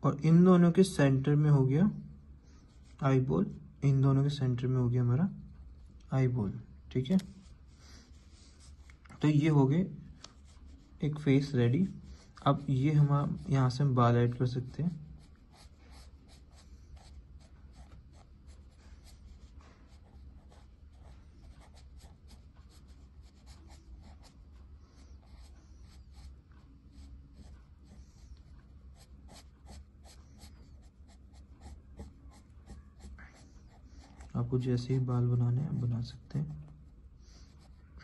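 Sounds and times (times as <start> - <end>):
low steady hum: 0.0 - 38.0
pencil scratching on paper: 14.5 - 34.6.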